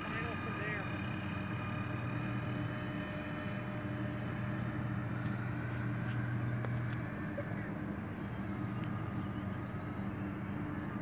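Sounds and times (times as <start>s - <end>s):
model airplane fans droning: 0.0s - 11.0s.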